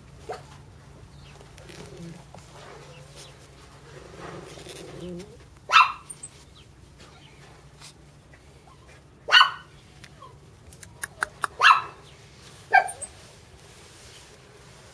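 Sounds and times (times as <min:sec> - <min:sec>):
puppy yapping: 0:05.7 - 0:06.3, 0:09.3 - 0:12.0, 0:12.7 - 0:13.1.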